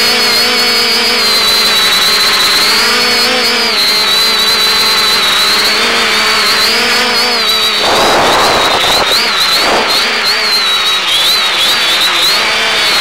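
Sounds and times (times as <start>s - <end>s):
drone propellers whining: 3.0s - 13.0s.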